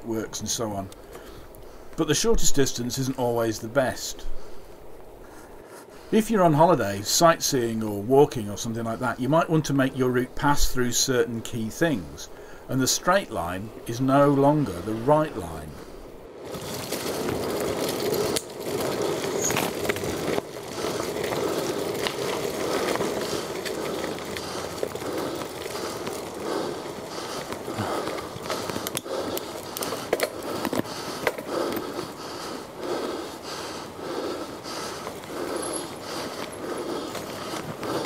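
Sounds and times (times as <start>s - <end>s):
bike tyres on dirt: 0.0s - 38.0s
rider breathing hard: 1.0s - 2.0s, 4.2s - 6.2s, 12.0s - 12.8s, 14.7s - 38.0s
bike knocking and rattling: 16.4s - 38.0s.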